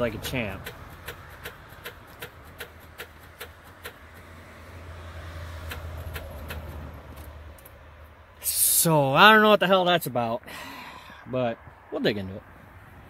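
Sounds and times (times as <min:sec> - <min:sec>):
starter ticking: 0:00.1 - 0:04.4, 0:05.6 - 0:07.7.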